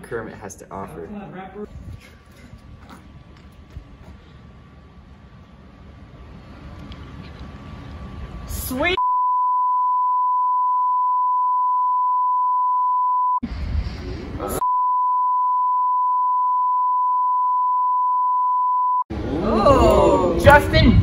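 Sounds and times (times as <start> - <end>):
censor bleep: 9.0 - 13.4, 14.6 - 19.1.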